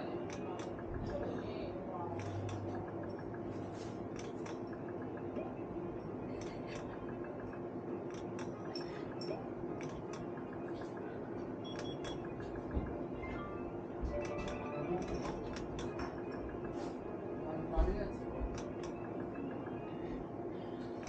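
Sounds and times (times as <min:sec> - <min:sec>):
steady background hum: 0:00.0 - 0:21.0
slot machine clicks: 0:02.0 - 0:16.8, 0:18.5 - 0:19.9.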